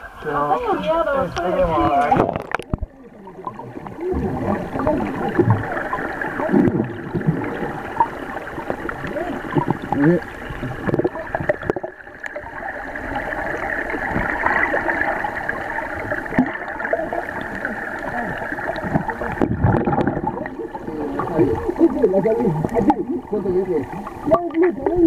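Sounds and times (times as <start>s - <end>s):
muffled underwater water rushing: 0.0s - 25.0s.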